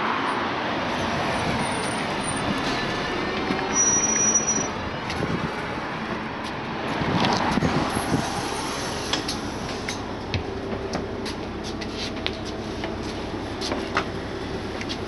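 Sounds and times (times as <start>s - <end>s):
bus engine running: 0.0s - 15.0s
footsteps on bus floor: 6.1s - 7.6s, 9.2s - 15.0s.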